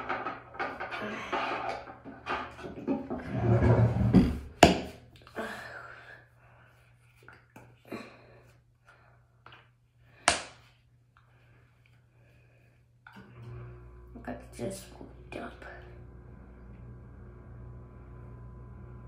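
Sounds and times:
dull rumbling noise: 13.7 - 19.0.

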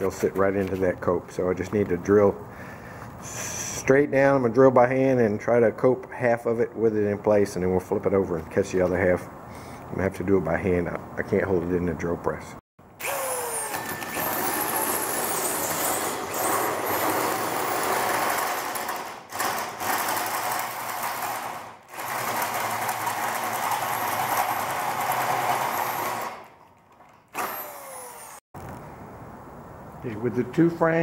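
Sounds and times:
electric drill hole saw grinding: 13.0 - 28.4.

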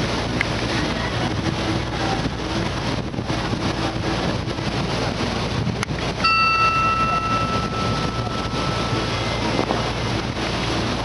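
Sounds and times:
ship motor running: 0.0 - 11.0
water rushing past hull: 0.0 - 11.0
wind buffeting microphone: 0.0 - 11.0
high steady tone: 6.2 - 10.6.

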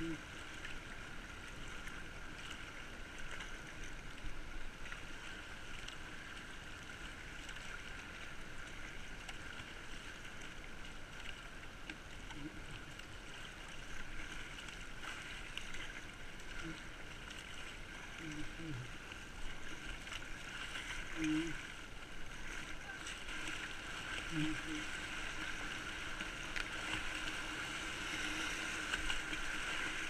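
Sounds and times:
paddle splashes: 0.0 - 30.0
river water rushing along hull: 0.0 - 30.0.

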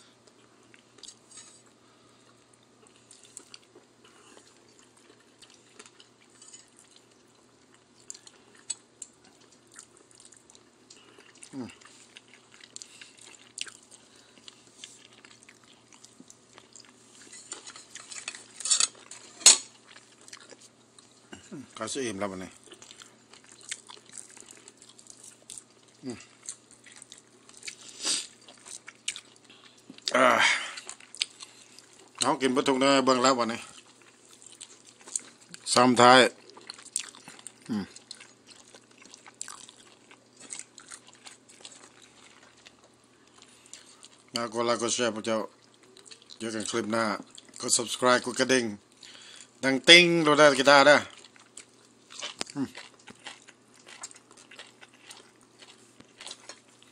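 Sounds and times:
chewing: 0.2 - 21.8, 22.5 - 32.3, 33.6 - 35.7, 36.3 - 44.4, 45.5 - 47.7, 51.0 - 56.9
cutlery clinking on a plate: 17.3 - 19.7.

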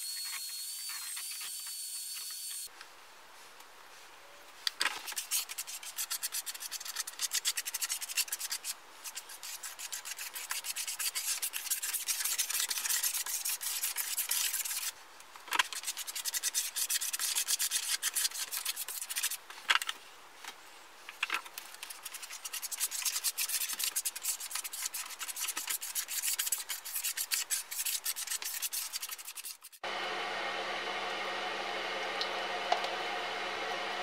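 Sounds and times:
gloved hand scrubbing wood: 5.0 - 14.9, 15.6 - 19.4, 21.6 - 29.8.

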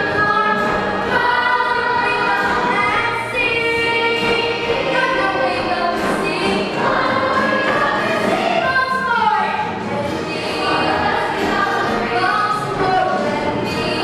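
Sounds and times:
children's chorus singing: 0.0 - 14.0.

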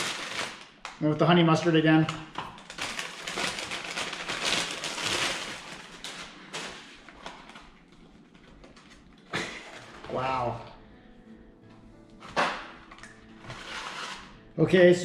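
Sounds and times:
paper bag rustling: 0.0 - 0.8, 2.6 - 10.5, 13.3 - 14.5
cardboard box being opened: 13.4 - 14.2.

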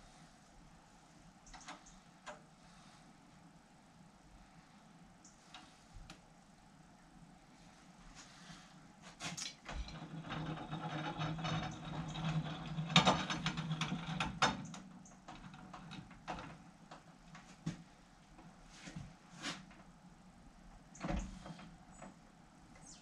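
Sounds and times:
scattered clicks and knocks: 9.4 - 17.8.

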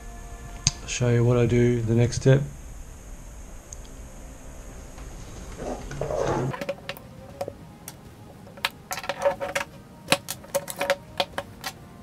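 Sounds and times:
rustling handling noise: 5.2 - 12.0
metallic clicks and clacks: 6.5 - 11.8.

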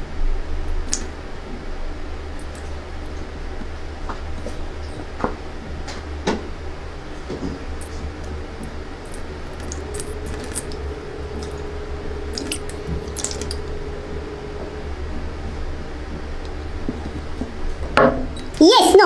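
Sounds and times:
steady low hum: 0.0 - 19.0
water dripping: 0.9 - 1.2, 2.3 - 3.7, 7.7 - 17.6.

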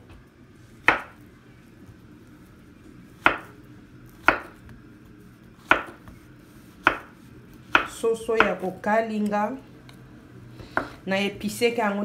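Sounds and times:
knife chopping on cutting board: 0.8 - 1.2, 3.2 - 3.5, 4.2 - 4.7, 5.6 - 6.2, 6.8 - 8.6, 10.7 - 11.0.

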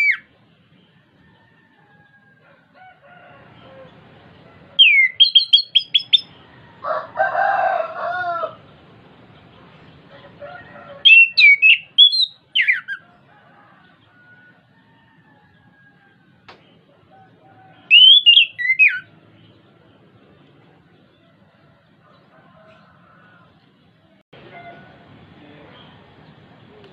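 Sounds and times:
thrush singing whistled notes: 0.0 - 0.9, 4.8 - 6.4, 11.0 - 13.1, 17.7 - 19.2.

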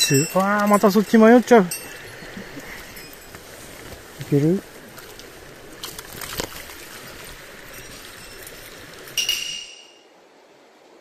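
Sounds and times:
stream trickling over stones: 0.0 - 10.4
sharp ringing clink: 9.2 - 10.0.

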